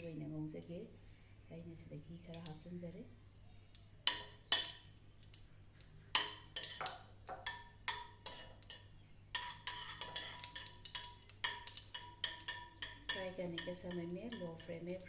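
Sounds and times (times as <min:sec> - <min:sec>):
spoon clinking in metal pan: 0:04.1 - 0:04.8, 0:06.2 - 0:14.8.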